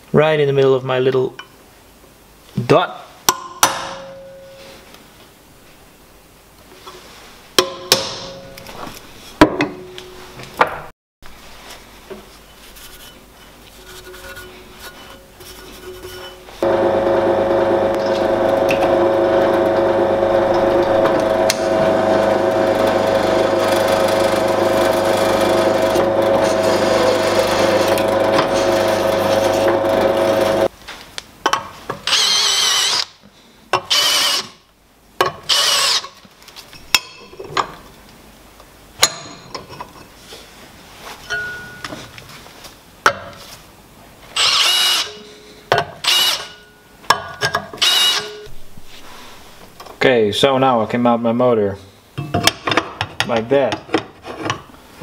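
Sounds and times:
drill press drilling steel: 16.6s - 30.7s, 32.1s - 33.0s, 33.9s - 34.5s, 35.5s - 36.1s, 44.4s - 45.2s, 46.0s - 46.6s, 47.8s - 48.4s
hand drill whining into steel: 16.9s - 30.7s, 32.1s - 33.1s, 33.9s - 34.6s, 35.5s - 36.2s, 44.4s - 45.2s, 46.0s - 46.6s, 47.8s - 48.4s.

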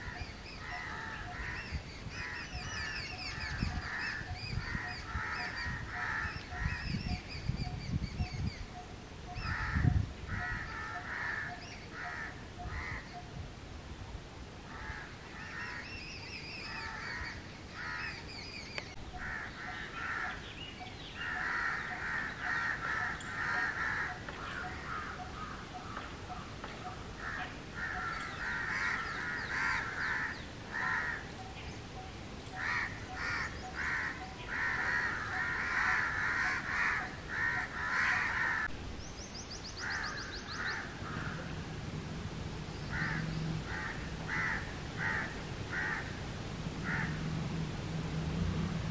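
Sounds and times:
crow cawing: 0.0s - 1.6s, 3.8s - 6.8s, 9.4s - 13.1s, 14.7s - 15.8s, 19.1s - 20.4s, 21.2s - 26.5s, 27.2s - 31.3s, 32.6s - 38.7s, 39.8s - 41.5s, 42.9s - 46.2s, 46.8s - 47.2s.

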